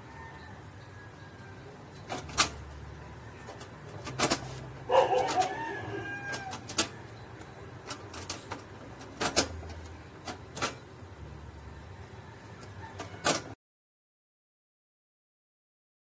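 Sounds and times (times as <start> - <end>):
rooster crowing: 0.0 - 1.8, 4.8 - 7.3, 11.7 - 13.6.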